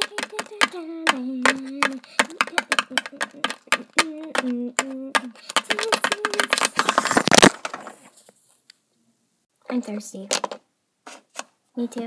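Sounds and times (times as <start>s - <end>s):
rapid clicking and tapping: 0.0s - 7.8s.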